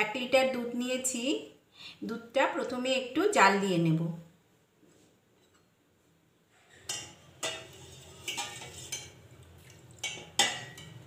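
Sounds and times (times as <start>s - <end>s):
ladle clinking against pot: 6.8s - 9.2s, 10.0s - 11.0s.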